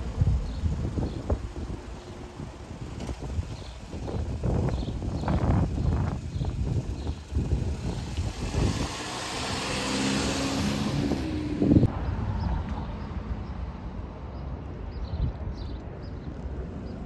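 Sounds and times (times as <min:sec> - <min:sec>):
wind on microphone: 0:00.0 - 0:13.0
distant airport noise: 0:00.0 - 0:17.0.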